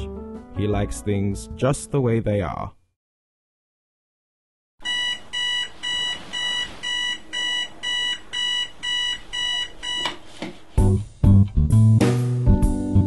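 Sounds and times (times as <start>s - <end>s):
music: 0.0s - 2.2s, 10.8s - 13.0s
digital alarm clock beeping: 4.8s - 10.1s.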